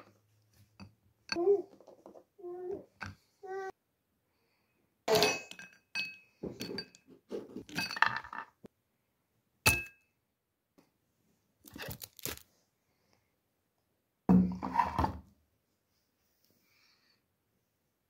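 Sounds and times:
porcelain dishes clinking: 0:05.1 - 0:07.1.

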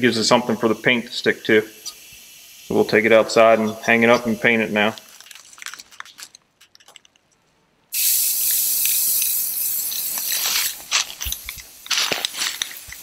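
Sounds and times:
spray paint hissing: 0:00.3 - 0:04.4, 0:07.9 - 0:13.0
spray can clicks: 0:08.0 - 0:13.0.

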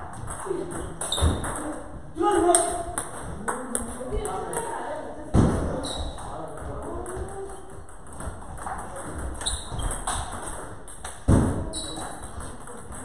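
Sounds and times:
loud thud: 0:05.3 - 0:05.8, 0:11.3 - 0:11.7.

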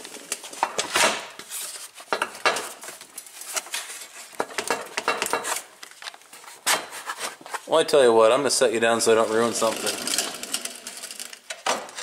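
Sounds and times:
plastic and metal clattering: 0:09.2 - 0:12.0.

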